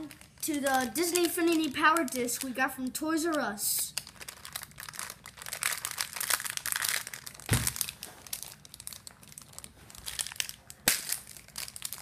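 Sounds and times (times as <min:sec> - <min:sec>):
wrapper crinkling and tearing: 0:00.0 - 0:12.0
loud thump: 0:07.5 - 0:07.8.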